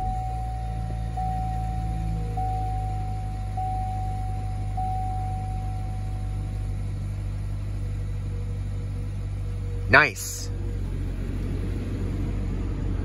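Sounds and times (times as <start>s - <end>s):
thin high tone: 0.0s - 9.1s
car engine idling: 0.0s - 13.0s.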